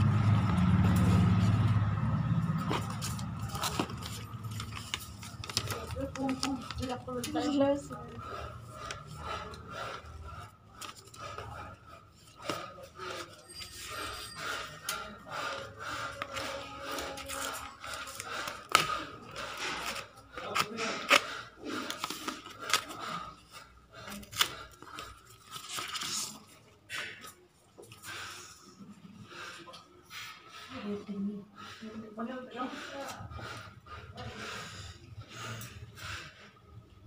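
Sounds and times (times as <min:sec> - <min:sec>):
cardboard rustling: 0:02.6 - 0:07.6.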